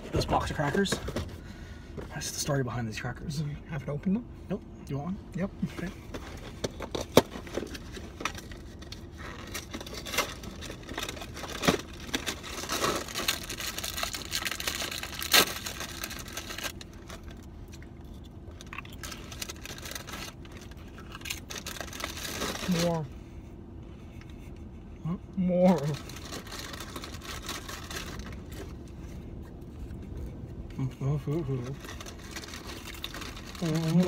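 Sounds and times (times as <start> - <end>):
cracker box crinkling and tearing: 6.3 - 23.1, 25.7 - 30.3, 31.3 - 34.0.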